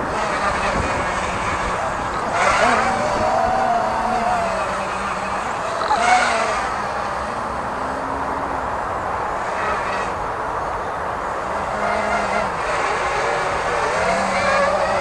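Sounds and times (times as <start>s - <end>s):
rushing noise: 0.0s - 10.6s
quadcopter propellers buzzing: 0.0s - 15.0s.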